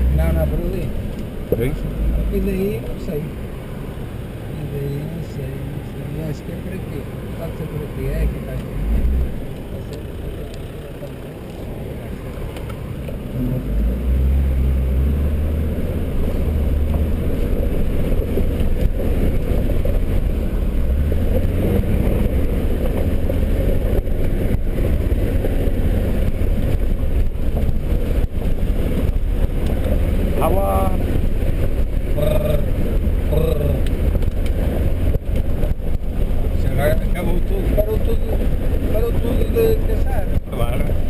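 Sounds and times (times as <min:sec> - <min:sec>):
car engine running inside cabin: 0:00.0 - 0:41.0.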